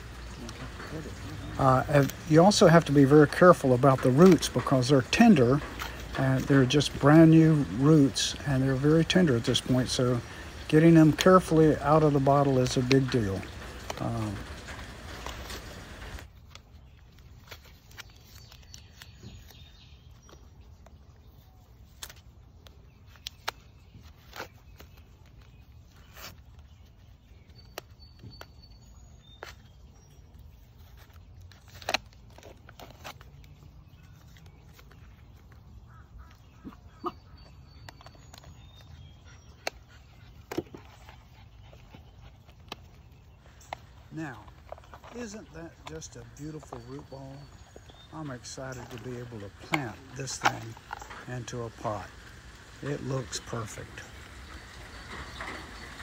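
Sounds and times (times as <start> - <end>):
scissors cutting plastic: 30.8 - 35.2.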